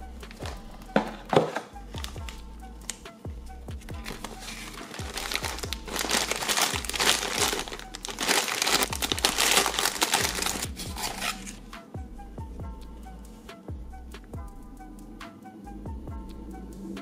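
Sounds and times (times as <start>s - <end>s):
plastic bag crinkling: 4.1s - 11.6s.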